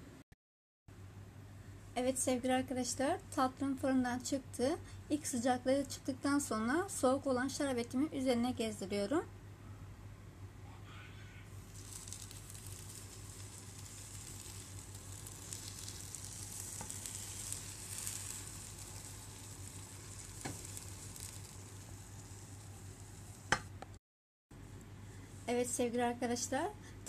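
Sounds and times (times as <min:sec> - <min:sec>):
syrup sizzling on hot pastries: 0:11.5 - 0:23.7.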